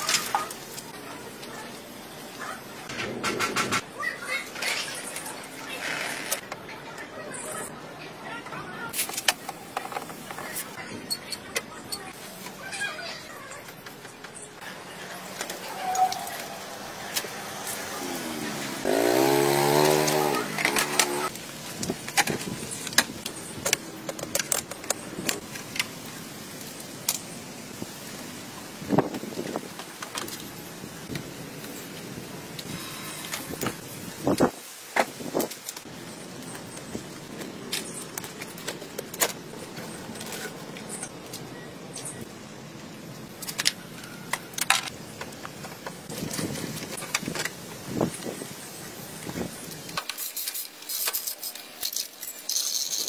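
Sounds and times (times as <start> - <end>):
hand tools clinking and rattling: 49.8 - 53.0.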